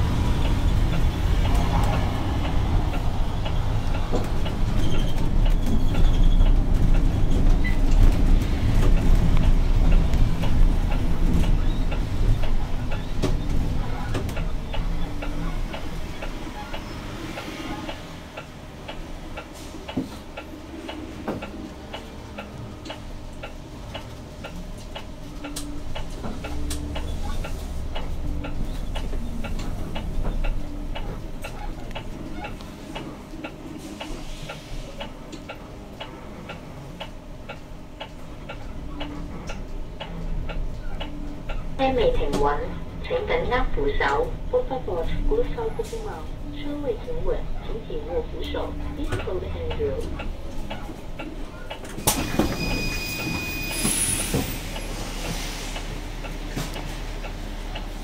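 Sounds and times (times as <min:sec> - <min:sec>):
bus drivetrain and road rumble: 0:00.0 - 0:58.0
regular ticking: 0:00.1 - 0:34.1.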